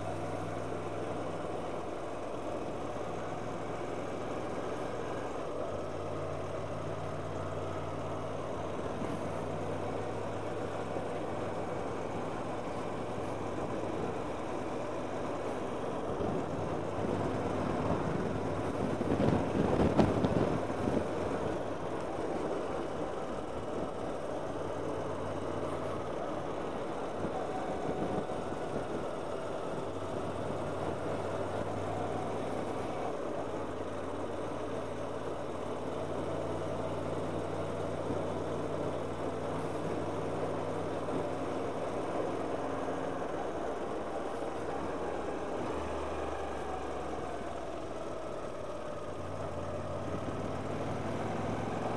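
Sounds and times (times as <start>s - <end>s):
wind rush: 17.7s - 21.1s.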